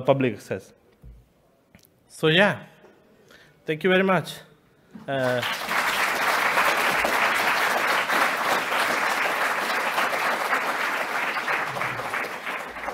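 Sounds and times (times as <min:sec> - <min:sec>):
audience applauding: 0:05.1 - 0:12.9.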